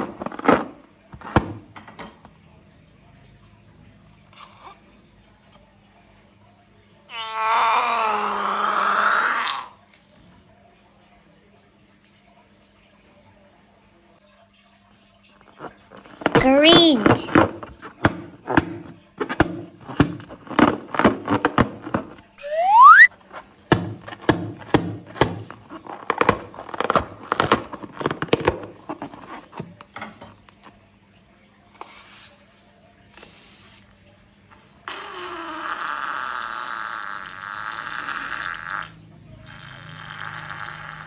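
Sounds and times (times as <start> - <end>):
short rising squeal: 22.4 - 23.1.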